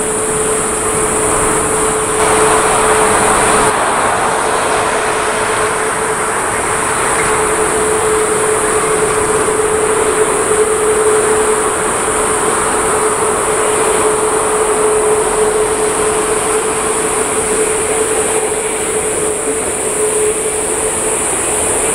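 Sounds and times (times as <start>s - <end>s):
jet engines rushing and whining: 0.0s - 21.9s.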